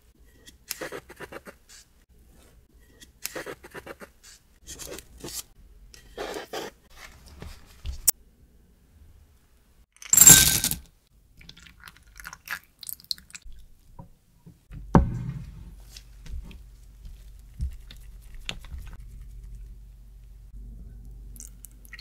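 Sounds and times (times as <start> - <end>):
low steady hum: 13.6 - 22.0.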